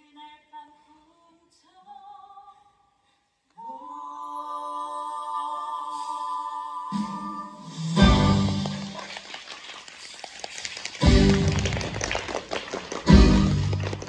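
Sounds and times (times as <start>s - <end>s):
woman singing into microphone: 3.6s - 7.7s.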